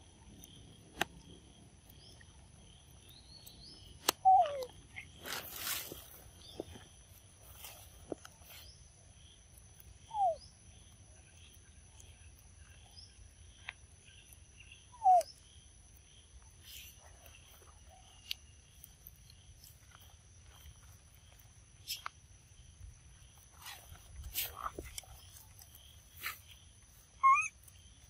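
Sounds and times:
pulsing insect chirp: 0.0s - 28.0s
monkeys squeaking: 4.2s - 4.7s, 27.2s - 27.6s.

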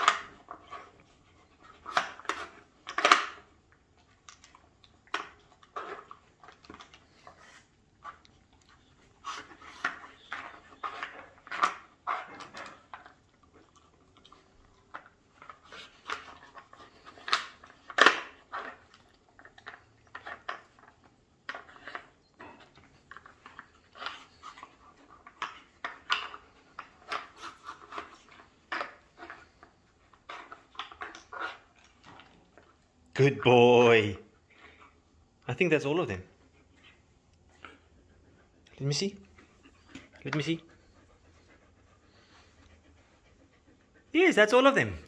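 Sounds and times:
wooden pieces clacking and knocking: 1.8s - 3.4s, 9.7s - 13.2s
dog sniffing and snuffling: 4.4s - 45.0s.

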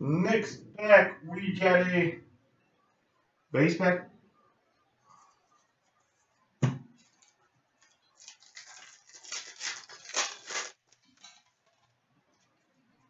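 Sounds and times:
foil wrappers crinkling: 7.0s - 12.0s.

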